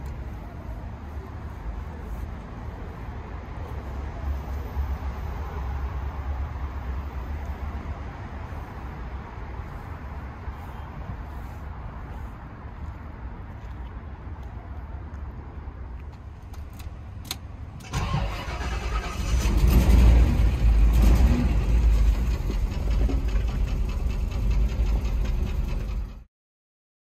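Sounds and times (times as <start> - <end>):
car engine starting and running: 16.6 - 26.3.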